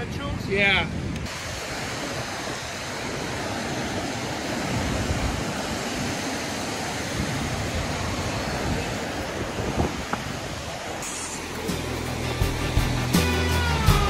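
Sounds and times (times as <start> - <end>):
wind buffeting microphone: 0.0 - 11.0
waves washing onto shore: 0.0 - 12.7.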